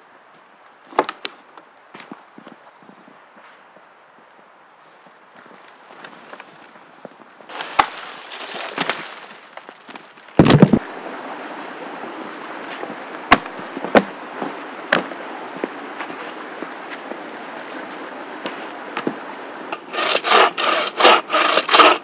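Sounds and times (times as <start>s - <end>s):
rushing stream water: 3.9s - 22.0s
sharp cracks of twigs snapping: 7.5s - 10.8s.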